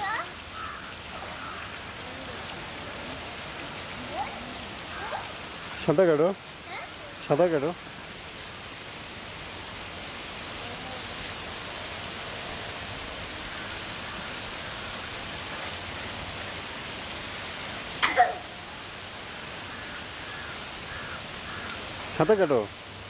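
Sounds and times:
background hiss: 0:00.0 - 0:23.0.

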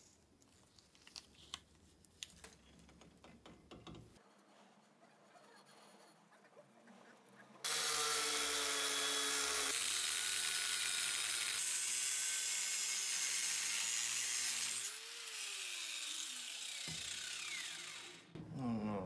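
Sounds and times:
angle grinder motor whine: 0:15.0 - 0:18.4.

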